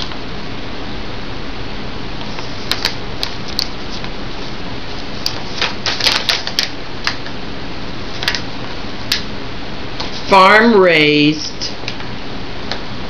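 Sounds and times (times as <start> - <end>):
plastic packaging crinkling: 5.2 - 6.7.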